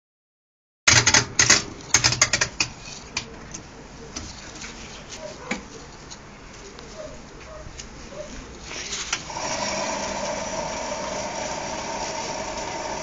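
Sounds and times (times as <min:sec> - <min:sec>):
washing machine running: 0:09.2 - 0:13.0.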